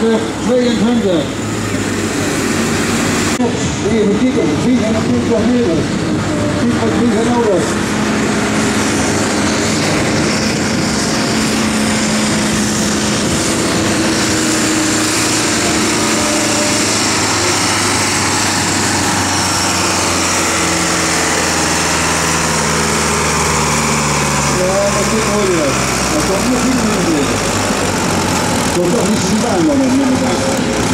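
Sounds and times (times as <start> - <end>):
tractor diesel engine under load: 0.0 - 30.9.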